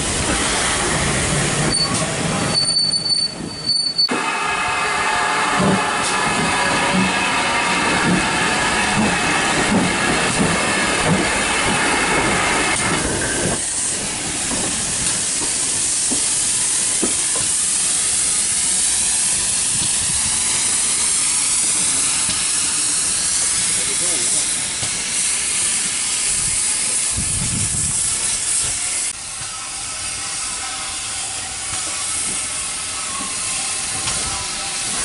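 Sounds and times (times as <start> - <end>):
train wheels squealing: 1.6 - 4.1, 28.7 - 35.0
steam hissing: 4.1 - 35.0.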